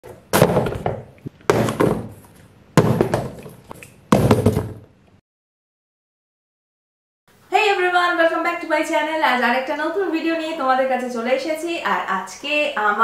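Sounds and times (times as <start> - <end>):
boxes thudding on floor: 0.0 - 4.9.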